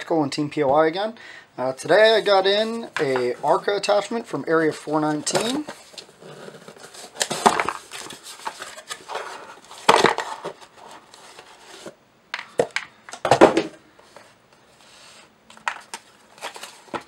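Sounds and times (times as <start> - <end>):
cardboard flaps scraping: 5.2 - 12.0.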